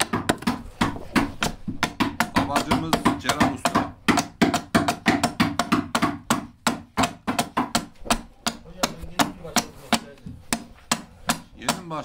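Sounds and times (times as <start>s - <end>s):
adze chopping wood: 0.0s - 12.0s.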